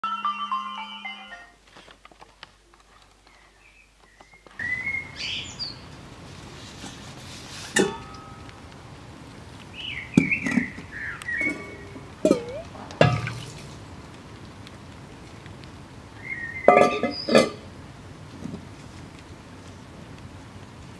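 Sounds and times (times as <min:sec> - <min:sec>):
small birds chirping: 0:03.1 - 0:06.0, 0:09.7 - 0:13.6, 0:16.2 - 0:17.4
ceramic pots clinking: 0:07.7 - 0:08.4, 0:10.2 - 0:13.8, 0:16.7 - 0:17.7.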